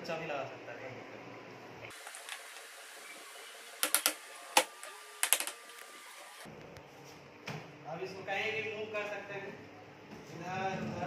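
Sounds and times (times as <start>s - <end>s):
plastic wheels clicking into sockets: 3.8s - 5.8s.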